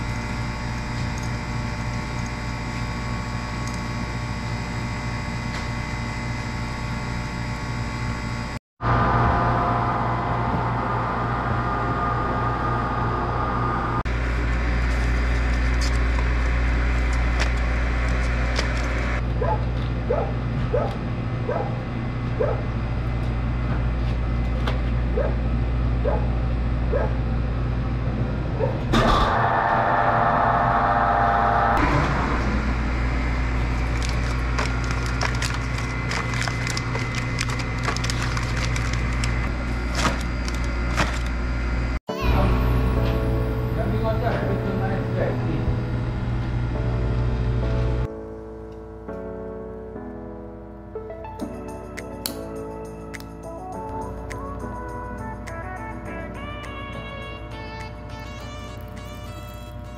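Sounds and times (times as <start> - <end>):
vacuum-packing machine humming: 0.0 - 19.3, 19.9 - 48.1
loud rush of noise: 29.0 - 34.6
plastic bags crackling: 33.6 - 41.3.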